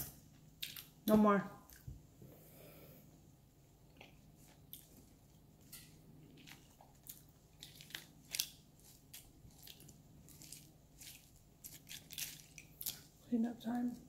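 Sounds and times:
walnut shells cracking and clicking: 11.6 - 13.0.

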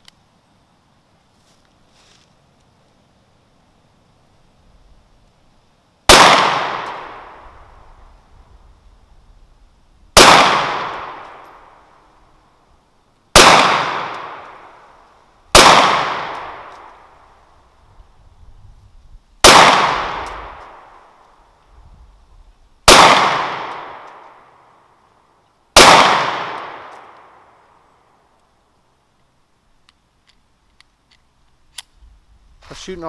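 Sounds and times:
pistol shots: 6.1 - 7.4, 10.2 - 11.5, 13.3 - 14.7, 15.5 - 17.0, 19.4 - 21.0, 22.8 - 24.4, 25.8 - 27.5.

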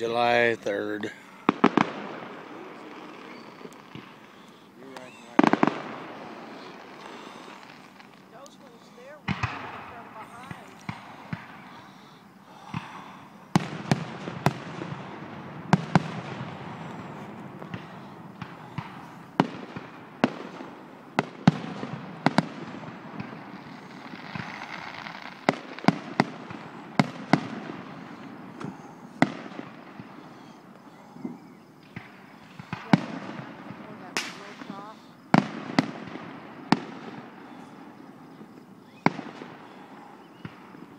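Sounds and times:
fireworks shells bursting: 0.0 - 40.9
steady background hiss: 0.0 - 40.9.

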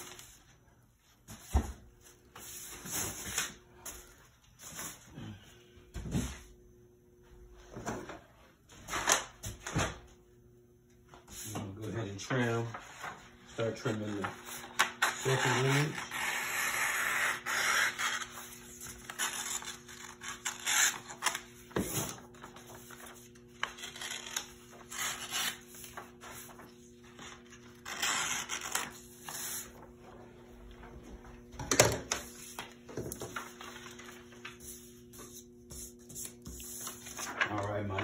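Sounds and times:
paper rustling: 11.3 - 16.0, 18.0 - 30.2, 32.1 - 38.0.

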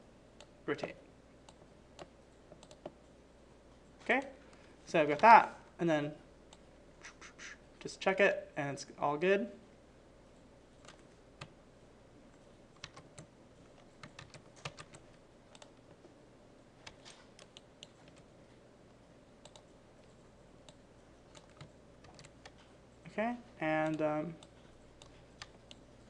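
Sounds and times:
keyboard and mouse clicks: 1.5 - 3.0, 12.8 - 15.9, 16.8 - 18.3, 19.4 - 22.7.

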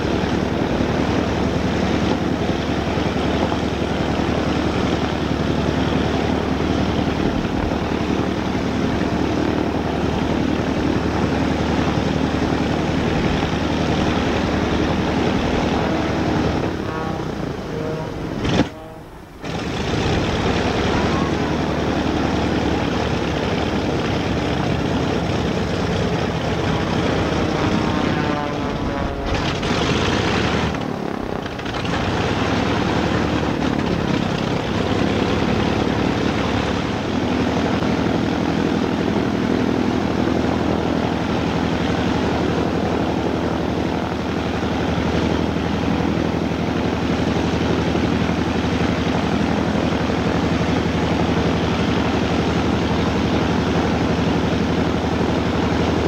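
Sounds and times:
radial aircraft engine idling: 0.0 - 56.0.

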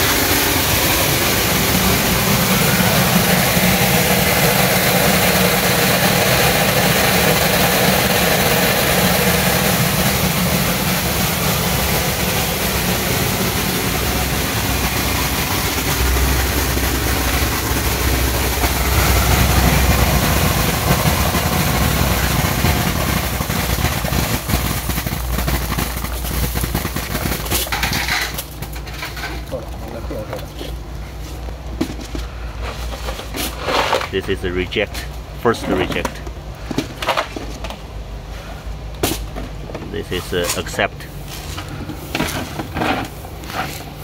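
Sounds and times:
low hum: 0.0 - 33.3
steady machine noise: 0.0 - 44.0.

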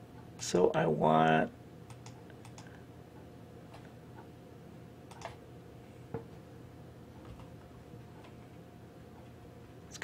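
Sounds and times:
steady low hum: 0.0 - 10.0
faint computer mouse clicks: 1.9 - 2.8, 5.1 - 5.4.

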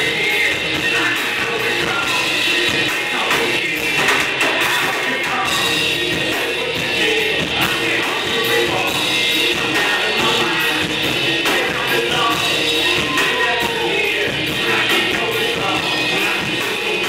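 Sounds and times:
drums: 0.0 - 17.0
person singing: 0.0 - 17.0.

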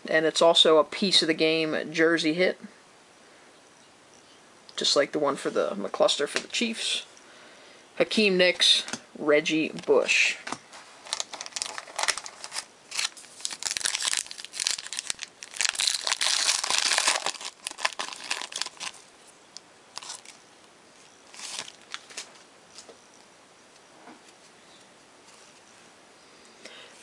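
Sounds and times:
cards rustling: 9.6 - 19.1, 20.0 - 20.4, 21.3 - 22.9
foil pack tearing and crinkling: 11.0 - 19.0, 20.0 - 20.4, 21.3 - 22.3.

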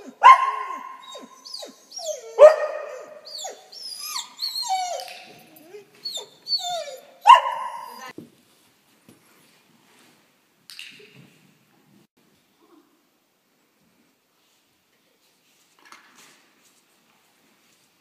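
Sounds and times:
dog barking: 0.0 - 1.4, 2.2 - 3.3, 7.2 - 8.1
dog yipping and whining: 0.0 - 8.1.

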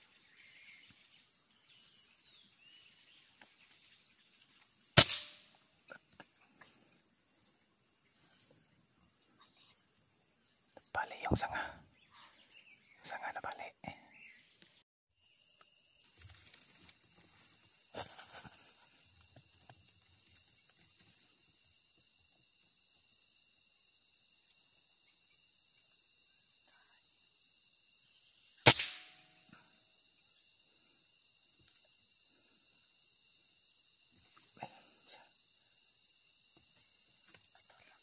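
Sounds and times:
high-pitched insect chorus: 0.0 - 38.0
air rifle shot: 5.0 - 5.5, 28.6 - 29.3.

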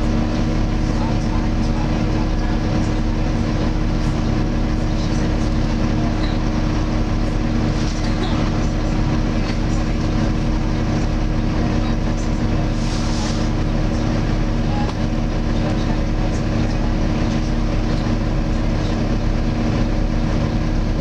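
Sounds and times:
bus engine running: 0.0 - 21.0
cooling fan whine: 0.0 - 21.0.

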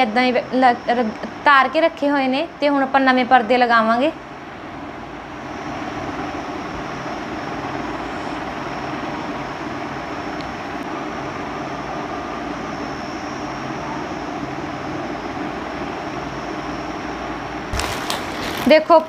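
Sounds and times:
electric fan whirring: 0.0 - 19.0.

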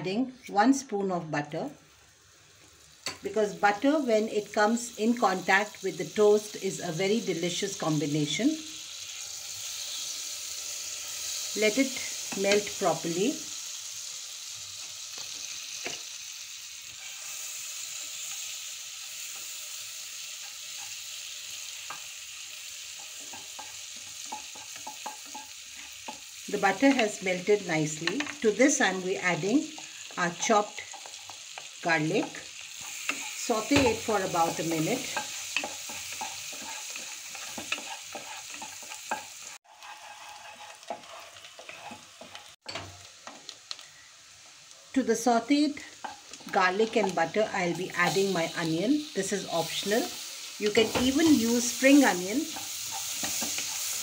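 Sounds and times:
butter sizzling in a pot: 0.0 - 54.0
wooden spatula scraping pot: 33.0 - 42.5.

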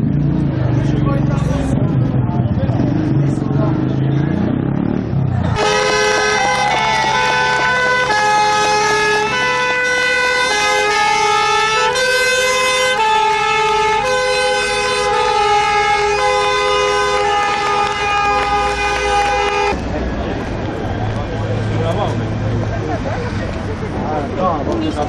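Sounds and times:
truck horns: 5.4 - 19.9
two-tone siren: 5.6 - 18.8.

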